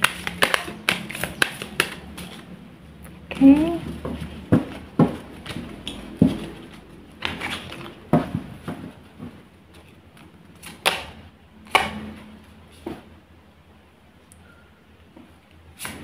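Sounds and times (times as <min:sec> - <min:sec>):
cards tapping and flicking: 0:00.0 - 0:02.5, 0:09.7 - 0:12.0.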